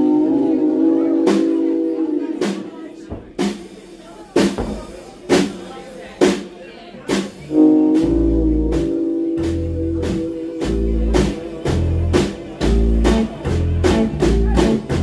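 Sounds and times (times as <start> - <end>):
live rock band playing: 7.1 - 15.0.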